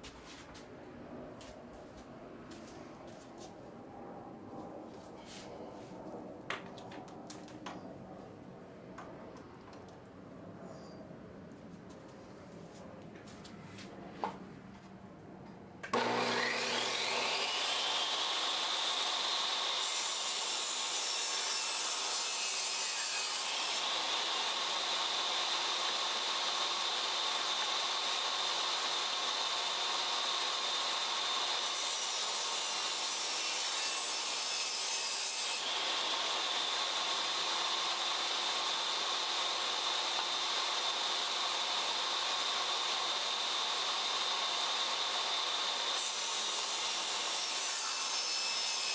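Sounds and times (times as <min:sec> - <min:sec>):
table saw motor whining: 0:15.9 - 0:32.4
saw blade cutting plywood: 0:15.9 - 0:48.9.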